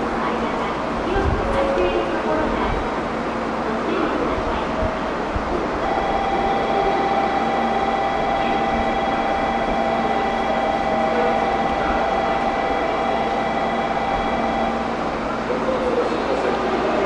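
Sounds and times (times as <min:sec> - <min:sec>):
train rumble: 0:00.0 - 0:17.0
constant whine: 0:03.9 - 0:17.0.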